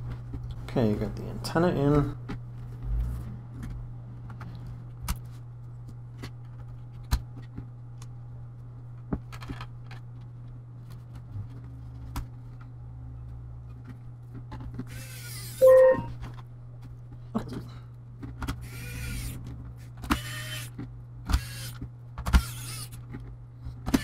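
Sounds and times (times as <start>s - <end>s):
loud pitched tone: 15.6s - 16.2s.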